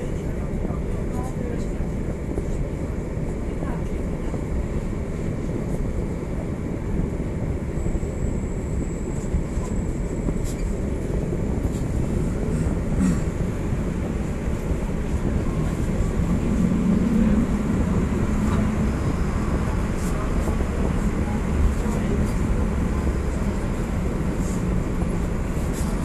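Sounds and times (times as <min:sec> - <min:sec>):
tram rumbling along track: 0:00.0 - 0:26.0
low motor hum: 0:10.0 - 0:26.0.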